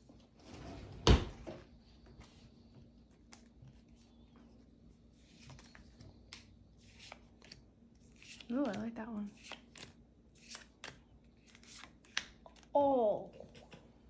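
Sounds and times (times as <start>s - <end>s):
cards flipped by hand: 5.2s - 12.7s.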